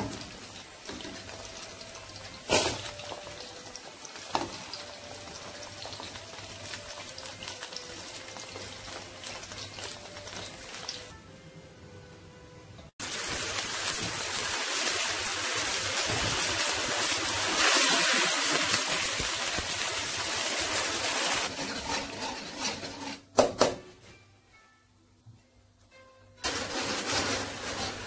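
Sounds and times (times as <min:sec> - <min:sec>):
sauce sizzling in a wok: 0:13.0 - 0:21.5.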